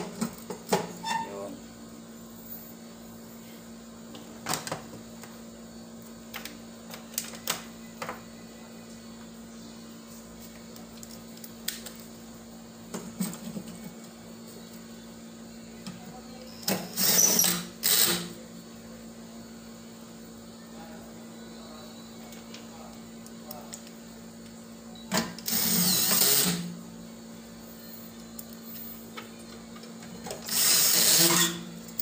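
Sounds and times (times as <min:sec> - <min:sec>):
cordless drill driving screws: 0:17.0 - 0:18.2, 0:25.4 - 0:26.6, 0:30.4 - 0:31.6.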